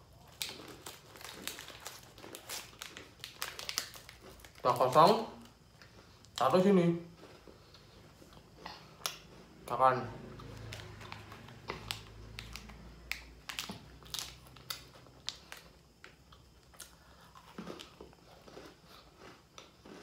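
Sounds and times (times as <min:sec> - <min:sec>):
cookie crunching and chewing: 0:00.0 - 0:20.0.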